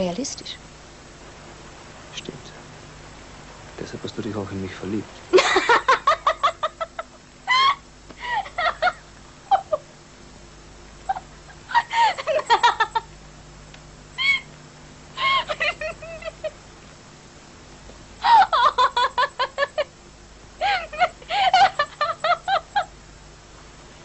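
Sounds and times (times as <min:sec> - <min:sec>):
woman laughing: 0:05.4 - 0:09.9, 0:11.1 - 0:13.1, 0:14.2 - 0:14.5, 0:15.2 - 0:16.6, 0:18.2 - 0:19.9, 0:20.6 - 0:22.9
woman squealing: 0:07.5 - 0:09.8, 0:11.1 - 0:12.9, 0:14.2 - 0:14.5, 0:15.2 - 0:16.5, 0:18.2 - 0:19.9, 0:20.6 - 0:22.9.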